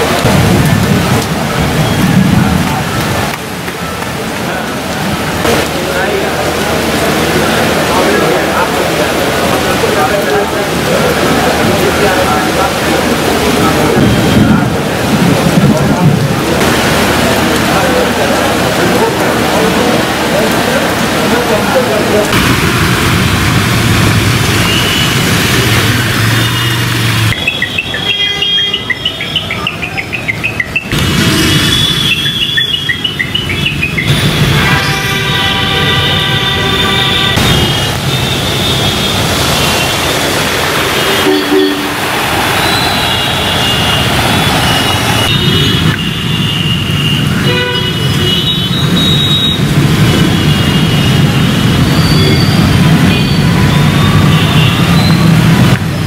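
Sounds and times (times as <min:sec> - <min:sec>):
street noise: 0:00.0 - 0:56.0
tyres swishing through water: 0:00.0 - 0:56.0
vehicle horns honking: 0:26.2 - 0:29.6, 0:31.1 - 0:40.0, 0:40.8 - 0:55.3
bird chirps: 0:27.4 - 0:30.9.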